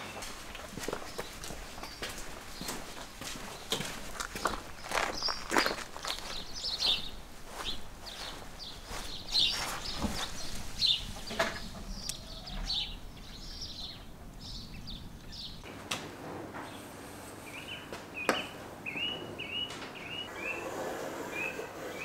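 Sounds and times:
small birds chirping: 0:00.0 - 0:15.7, 0:16.6 - 0:22.0.

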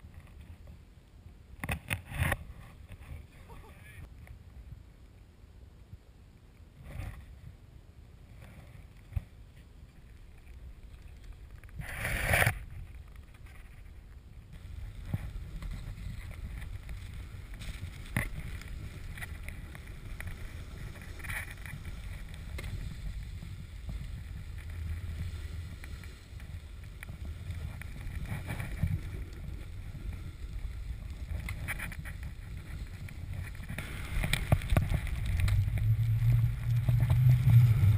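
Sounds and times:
snowboard scraping over snow: 0:14.6 - 0:37.9
wind buffeting microphone: 0:14.6 - 0:37.9.

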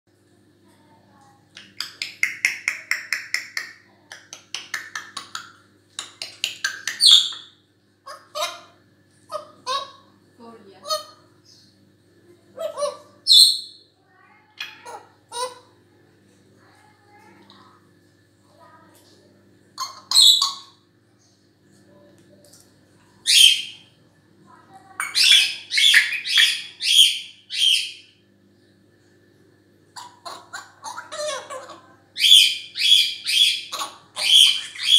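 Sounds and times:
parrot clicking: 0:01.5 - 0:07.3
parrot squawk: 0:08.1 - 0:10.1, 0:19.8 - 0:20.8, 0:25.0 - 0:28.0, 0:30.0 - 0:34.9.

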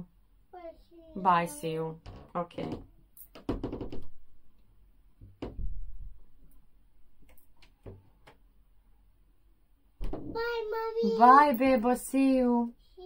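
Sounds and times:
knocks: 0:02.0 - 0:04.2, 0:05.2 - 0:06.2, 0:10.0 - 0:10.6.

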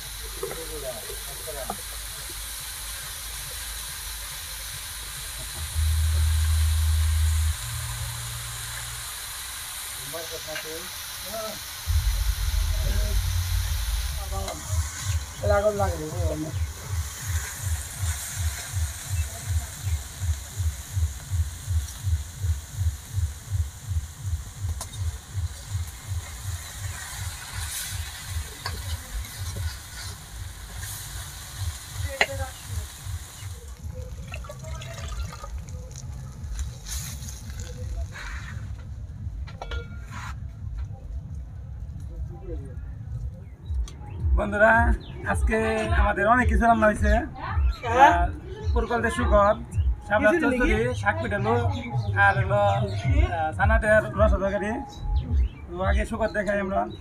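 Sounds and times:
greens sizzling in a wok: 0:00.0 - 0:38.7
deep low rumble: 0:05.4 - 0:09.4, 0:11.9 - 0:19.7.

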